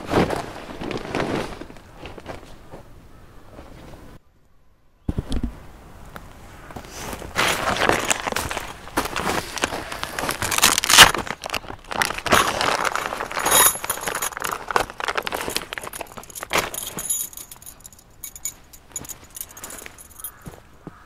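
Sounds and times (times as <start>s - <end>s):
fabric bag rustling: 0.0s - 2.4s, 7.2s - 20.4s.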